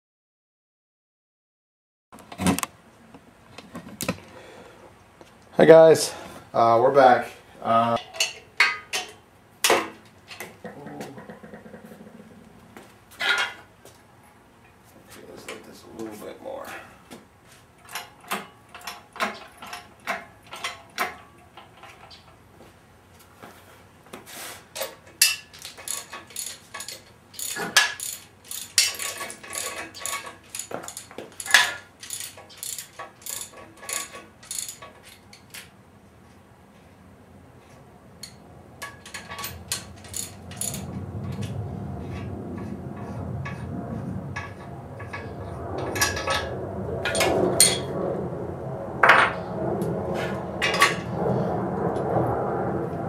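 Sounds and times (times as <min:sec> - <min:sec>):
ratchet wrench clicking: 0:25.2 - 0:35.5, 0:39.0 - 0:40.9
low rumbling noise: 0:37.2 - 0:53.0.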